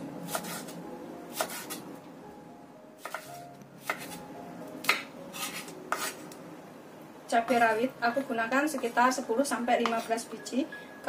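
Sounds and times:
knife chopping on cutting board: 0:00.3 - 0:00.7, 0:01.3 - 0:01.8, 0:03.0 - 0:04.2, 0:04.8 - 0:06.2.

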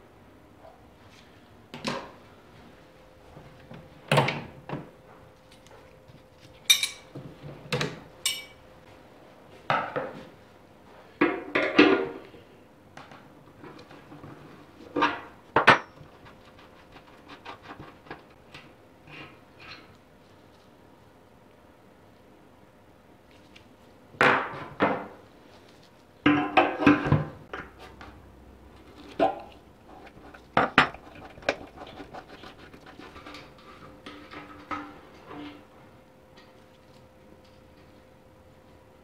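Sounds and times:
metal clinking and knocking: 0:08.3 - 0:08.6.

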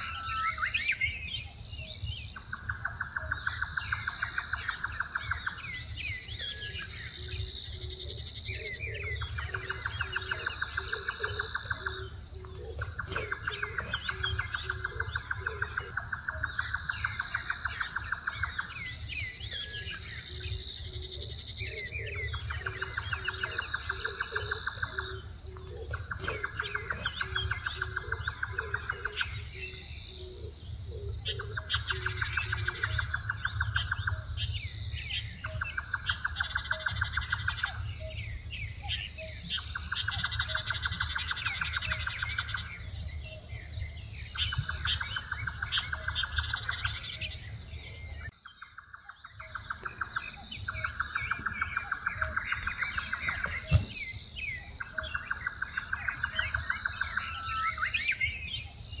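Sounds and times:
high bird chirps: 0:01.9 - 0:38.2, 0:43.6 - 0:59.0
pulsed bird trill: 0:02.6 - 0:34.4.

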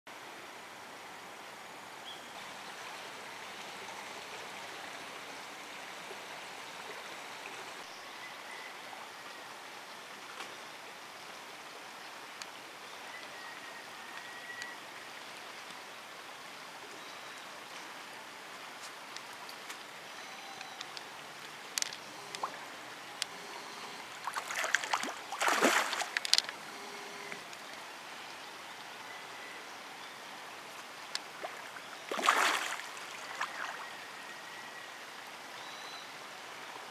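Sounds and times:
flowing river water: 0:00.1 - 0:36.9
fish splashing at surface: 0:24.2 - 0:26.5, 0:32.1 - 0:32.9.

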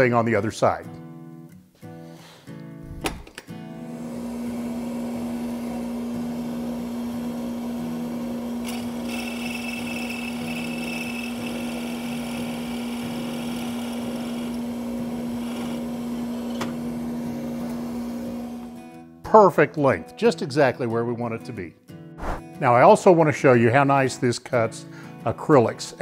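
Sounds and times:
drill press humming: 0:03.9 - 0:18.8
mill cutting with scraping whine: 0:04.0 - 0:18.8.

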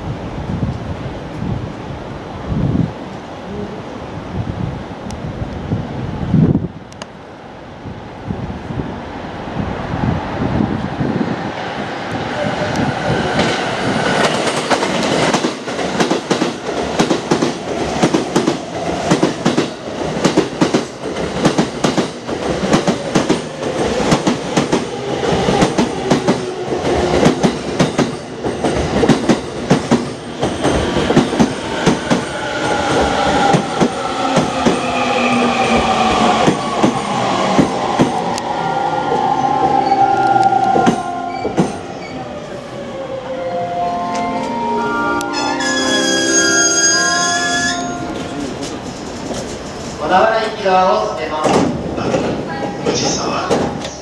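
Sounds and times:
train wheels clattering over rails: 0:12.9 - 0:38.4, 0:48.2 - 0:50.6, 0:51.4 - 0:54.0
train brake whine: 0:43.4 - 0:49.9.

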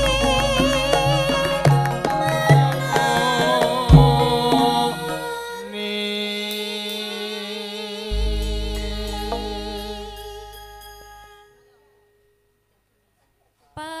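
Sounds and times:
gamelan struck pitched notes: 0:00.0 - 0:05.6, 0:08.1 - 0:11.9
held wavering notes: 0:00.0 - 0:05.8, 0:08.1 - 0:12.4
low drum strokes: 0:03.9 - 0:05.1, 0:08.1 - 0:11.4
deep ringing gong stroke: 0:08.1 - 0:11.5.

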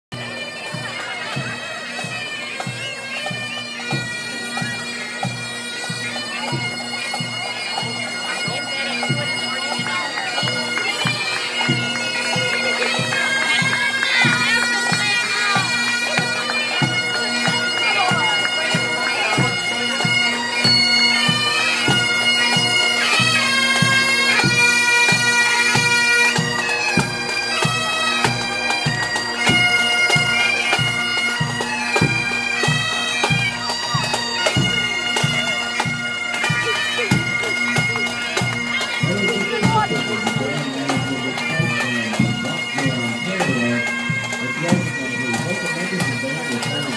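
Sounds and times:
bagpipes playing: 0:00.1 - 0:46.9
bass drum march beat: 0:34.5 - 0:46.1.

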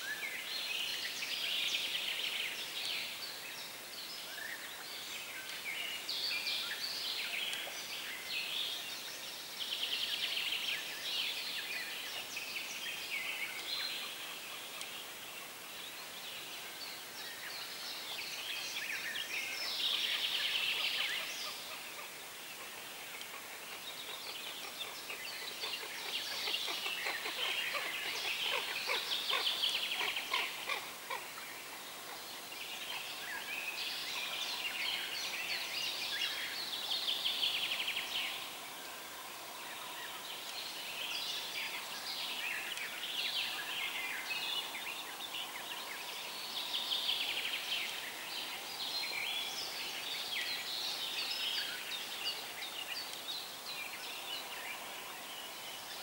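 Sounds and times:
songbirds trilling: 0:18.9 - 0:38.7.

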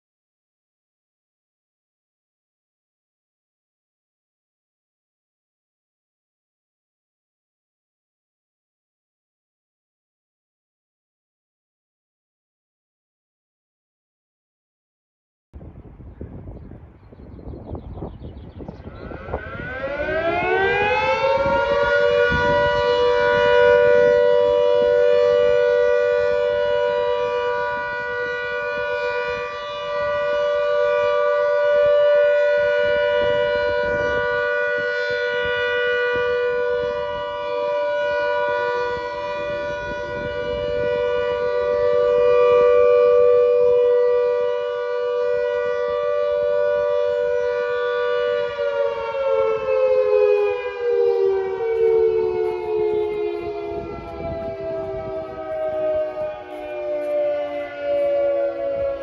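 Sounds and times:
siren wailing: 0:18.1 - 0:59.0.

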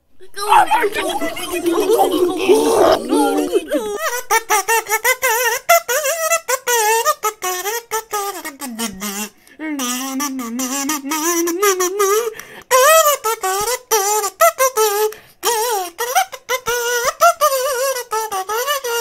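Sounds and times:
high warbling voice: 0:00.1 - 0:04.7, 0:08.4 - 0:12.3.

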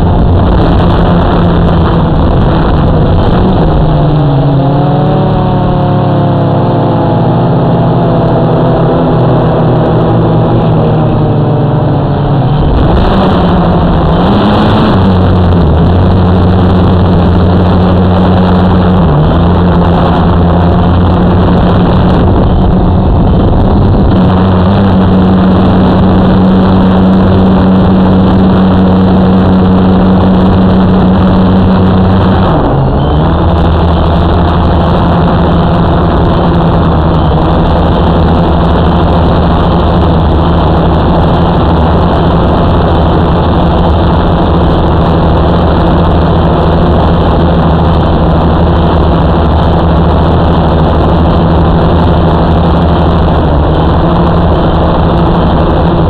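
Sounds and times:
rush of air noise: 0:00.0 - 0:56.0.

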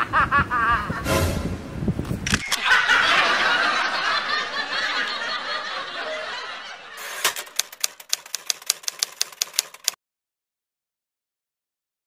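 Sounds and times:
canned crowd laughter: 0:02.6 - 0:07.6
typewriter key clicks: 0:07.1 - 0:10.0.

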